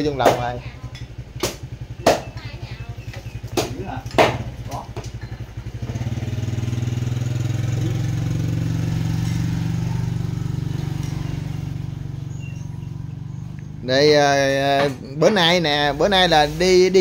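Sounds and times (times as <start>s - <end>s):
small engine running: 0.8s - 14.2s.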